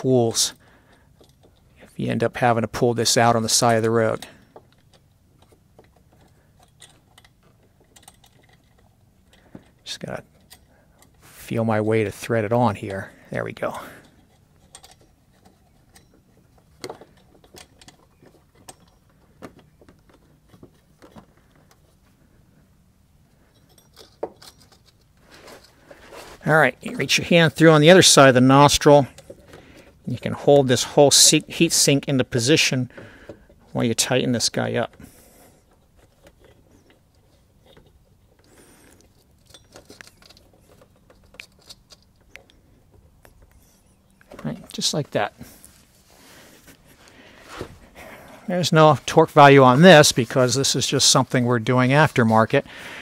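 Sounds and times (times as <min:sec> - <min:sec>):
small metal clicks and rustling: 0:00.3 - 0:46.0
small metal clicks and taps: 0:03.7 - 0:11.2, 0:35.8 - 0:44.4.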